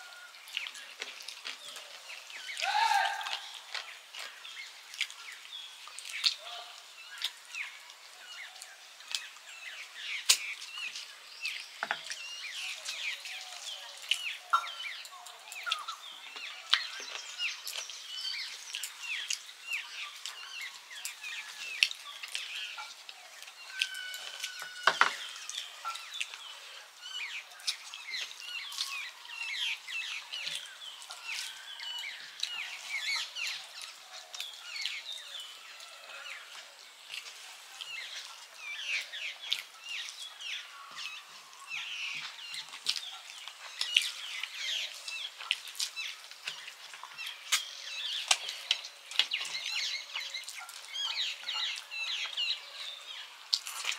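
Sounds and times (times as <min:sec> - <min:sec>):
small birds chirping: 0:00.0 - 0:53.9
fingers squishing food on plates: 0:00.4 - 0:08.0, 0:10.2 - 0:35.5, 0:36.2 - 0:40.3, 0:42.1 - 0:53.9
chewing and lip smacks: 0:03.3 - 0:06.4, 0:18.7 - 0:19.5, 0:32.3 - 0:35.0, 0:36.5 - 0:38.4, 0:42.2 - 0:52.9, 0:53.5 - 0:53.9.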